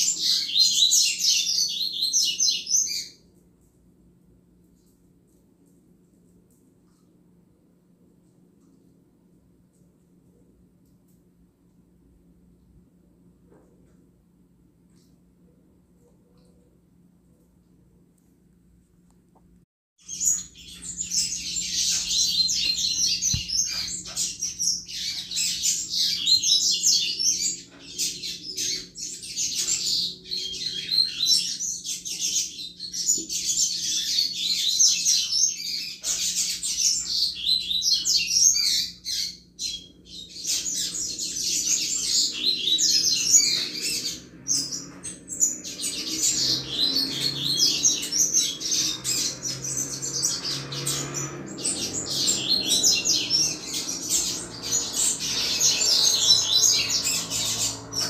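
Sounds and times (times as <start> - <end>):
bird high twittering song: 0.0 - 3.3, 20.0 - 58.0.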